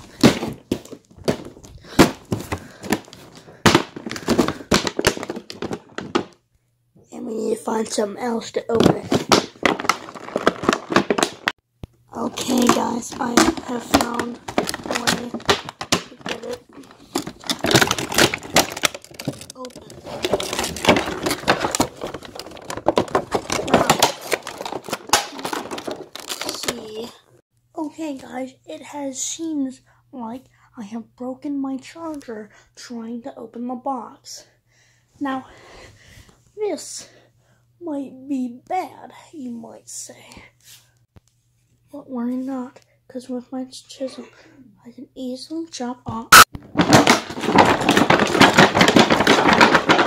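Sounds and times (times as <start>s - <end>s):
plastic and cardboard packaging crinkling: 0.0s - 6.4s, 8.7s - 11.6s, 12.2s - 27.2s, 46.3s - 50.0s.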